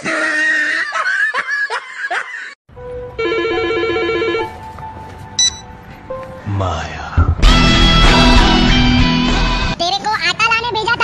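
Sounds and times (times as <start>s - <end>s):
mobile phone ringing: 3.2s - 4.6s, 5.4s - 5.7s.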